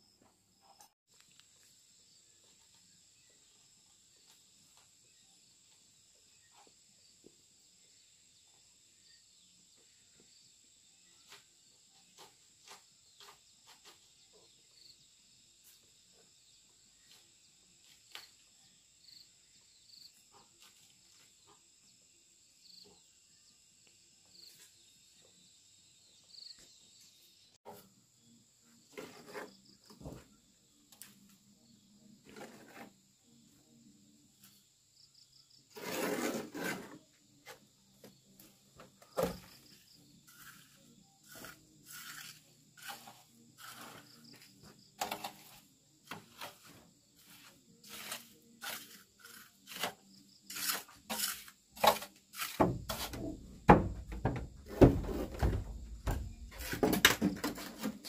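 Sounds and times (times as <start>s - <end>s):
hand tool scraping and knocking: 28.9s - 30.3s, 32.3s - 33.0s, 35.8s - 37.6s, 38.8s - 58.0s.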